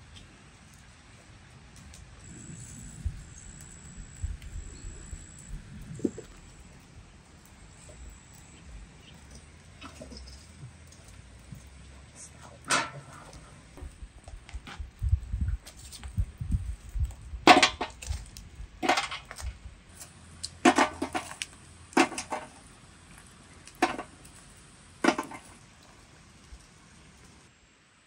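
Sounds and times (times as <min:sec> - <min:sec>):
charcoal scraping and clattering on metal: 0:07.7 - 0:14.8, 0:15.6 - 0:26.6.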